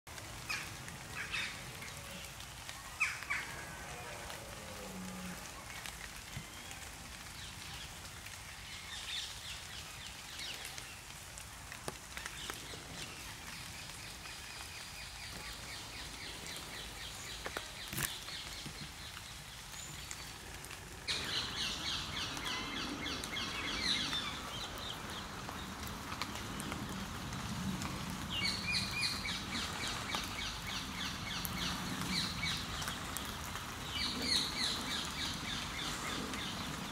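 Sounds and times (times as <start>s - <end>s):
rain falling: 0.1s - 36.9s
birds chirping: 12.4s - 26.8s.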